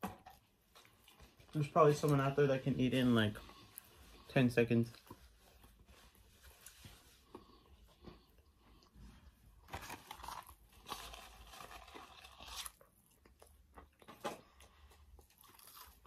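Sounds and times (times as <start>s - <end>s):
chewing a meat sandwich: 3.4s - 16.0s.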